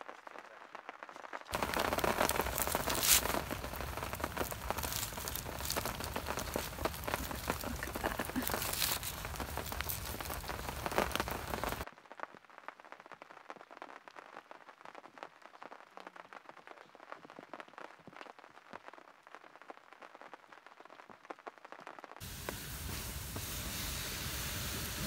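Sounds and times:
corn husks rustling and crackling: 0:00.2 - 0:11.9
water hissing on hot coals: 0:01.5 - 0:11.9, 0:22.2 - 0:25.0.

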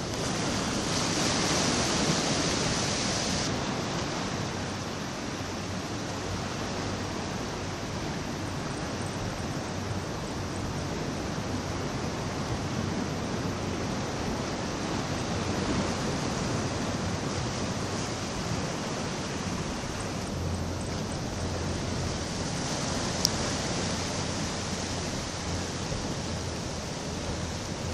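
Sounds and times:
sea water washing against rocks: 0:00.0 - 0:05.4, 0:11.5 - 0:27.9
wind: 0:00.0 - 0:27.9.

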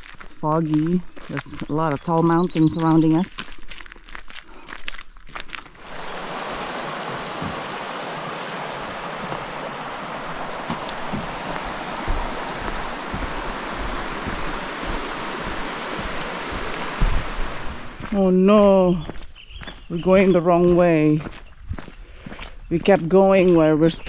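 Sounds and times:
running water rushing: 0:05.7 - 0:18.3
soft low thumps: 0:10.4 - 0:20.8.

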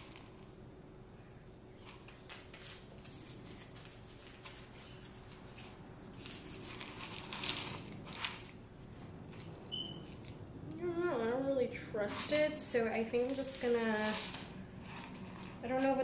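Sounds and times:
food packaging crinkling: 0:02.2 - 0:08.6.

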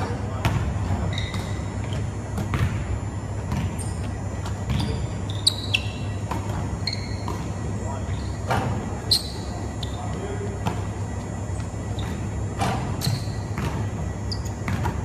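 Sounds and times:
sneakers squeaking on court: 0:00.0 - 0:15.0
steady low hum: 0:00.0 - 0:15.0
basketball bouncing on hardwood floor: 0:01.2 - 0:02.8, 0:03.5 - 0:03.8, 0:12.0 - 0:13.8, 0:14.6 - 0:15.0.

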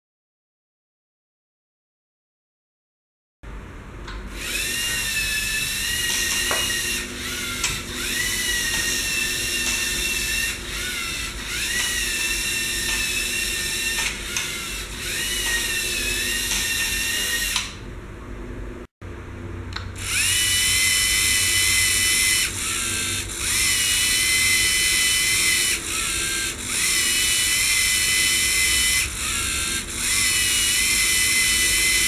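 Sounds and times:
robot motors whining: 0:04.3 - 0:17.8, 0:20.0 - 0:32.0.

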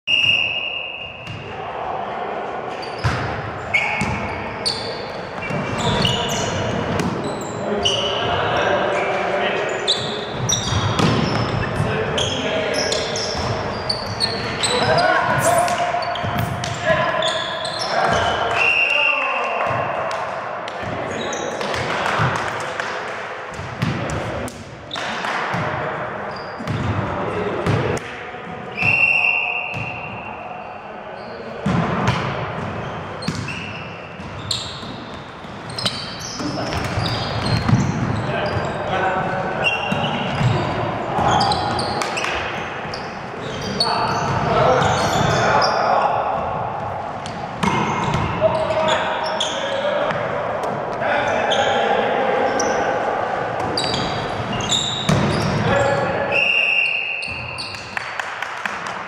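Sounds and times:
referee's whistle blast: 0:00.1 - 0:01.3, 0:28.7 - 0:30.3, 0:56.3 - 0:57.6
players calling: 0:00.1 - 0:23.0, 0:32.8 - 0:58.1
shoes squeaking on wooden floor: 0:32.8 - 0:38.8, 0:53.7 - 0:55.6.

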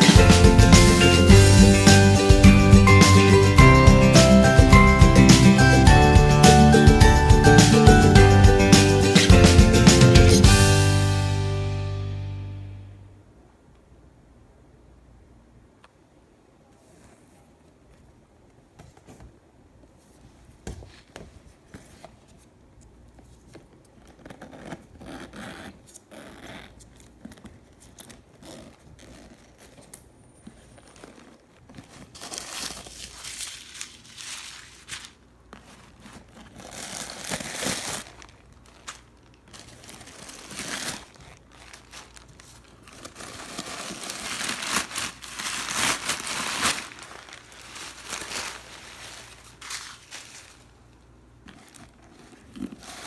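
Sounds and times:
packing paper crinkling: 0:27.0 - 0:53.0.

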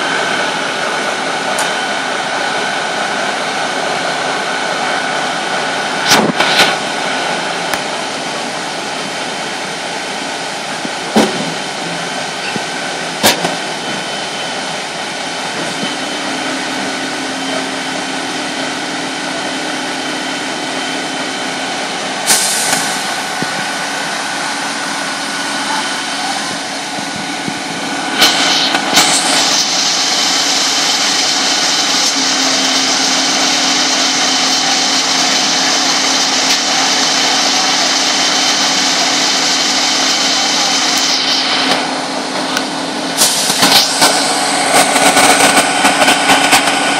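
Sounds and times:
fire engines idling: 0:00.0 - 0:46.9
hiss: 0:22.2 - 0:23.8, 0:28.1 - 0:41.9, 0:43.2 - 0:46.8.

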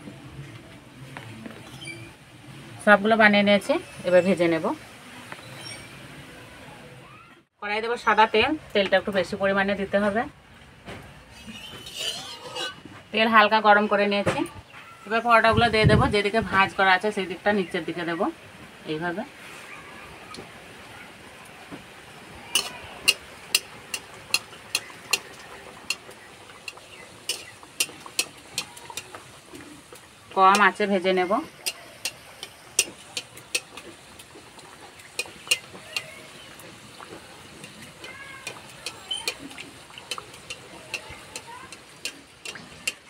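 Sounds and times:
hot oil sizzling: 0:11.1 - 0:14.5, 0:15.3 - 0:43.0
oil crackles and pops: 0:21.3 - 0:43.0.

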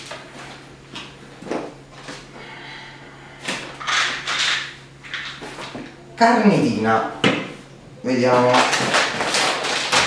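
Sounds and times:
plastic pouches rustling: 0:08.2 - 0:10.0.

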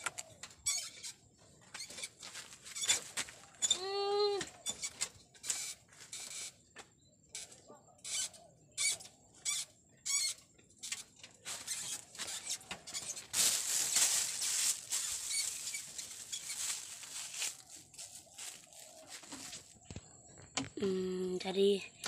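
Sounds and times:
rustling and scratching: 0:00.0 - 0:03.7, 0:07.3 - 0:20.8.

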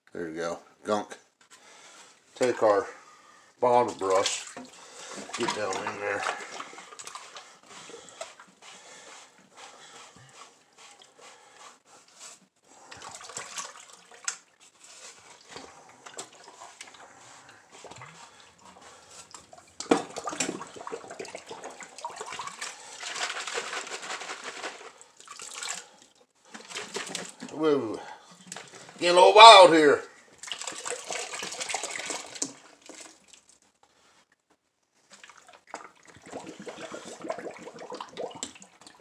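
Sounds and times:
water sloshing and splashing: 0:03.6 - 0:09.1, 0:12.8 - 0:27.6, 0:30.4 - 0:33.6, 0:35.0 - 0:39.0
brush scrubbing plastic tank: 0:03.7 - 0:25.0.

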